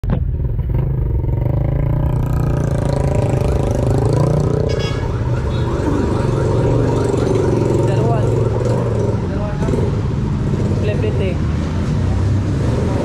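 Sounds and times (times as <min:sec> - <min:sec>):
motorcycle engine running: 0:00.0 - 0:04.9
street traffic: 0:00.0 - 0:13.0.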